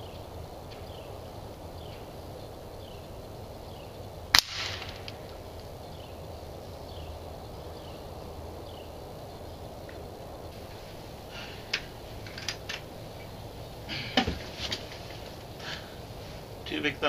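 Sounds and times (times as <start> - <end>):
air rifle shot: 4.3 - 5.4.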